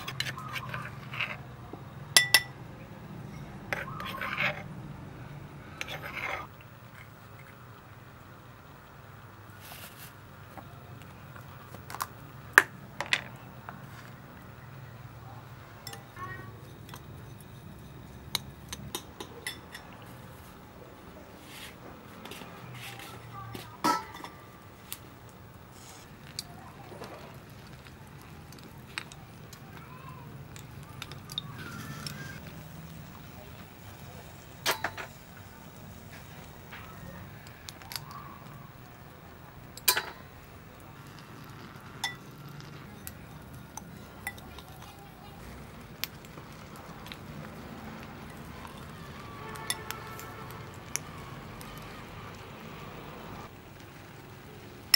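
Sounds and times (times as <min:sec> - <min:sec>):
metal spoon clinking ceramic bowl: 0:02.2 - 0:02.6, 0:15.8 - 0:20.0, 0:39.8 - 0:40.3, 0:42.0 - 0:42.3, 0:43.0 - 0:44.9
tongs clicking on snail shells: 0:42.1 - 0:45.3.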